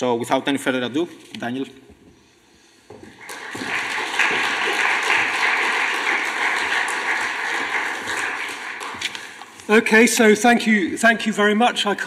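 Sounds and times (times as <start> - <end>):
audience applauding: 3.1 - 9.7.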